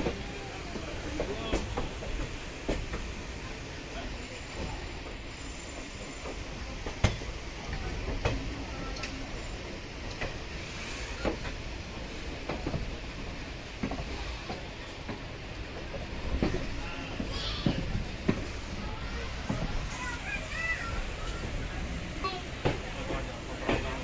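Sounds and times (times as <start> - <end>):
train rumbling over track: 0.0 - 24.0.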